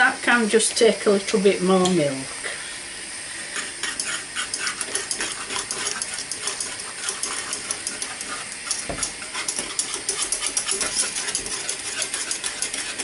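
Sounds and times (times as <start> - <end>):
steady hiss: 0.0 - 9.7
whisk clicking against saucepan: 3.6 - 13.0.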